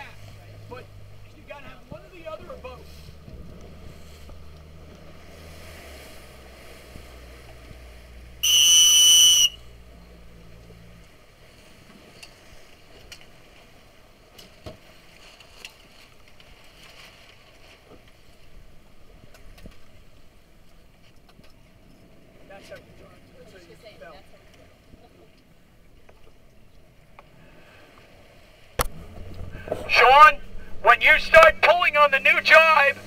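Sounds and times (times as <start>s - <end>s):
low engine drone: 0.0s - 11.7s, 28.8s - 33.0s
water noise: 0.0s - 33.0s
wind: 0.0s - 33.0s
whistle blast: 8.4s - 9.7s.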